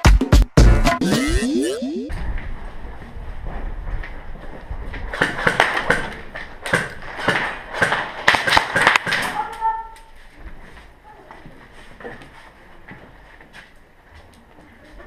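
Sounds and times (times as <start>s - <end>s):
sharp knocks and taps: 5.1s - 9.4s.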